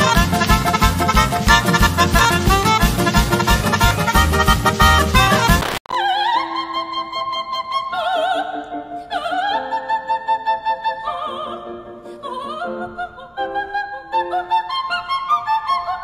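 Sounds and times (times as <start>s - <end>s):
instrumental accompaniment: 0.0s - 5.8s.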